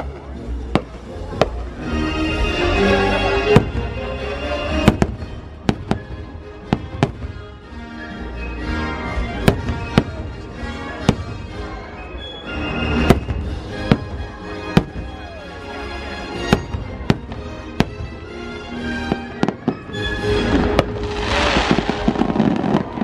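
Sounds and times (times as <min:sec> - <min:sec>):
music playing: 0:00.0 - 0:23.0
fireworks bangs: 0:03.4 - 0:04.0, 0:04.7 - 0:07.5, 0:09.4 - 0:10.4, 0:16.5 - 0:18.2, 0:19.0 - 0:23.0.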